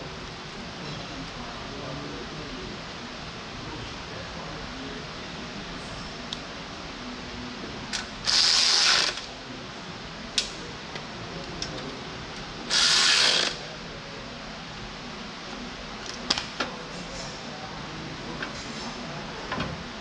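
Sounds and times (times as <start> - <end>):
ratchet wrench clicking: 8.0 - 9.3, 12.7 - 13.6.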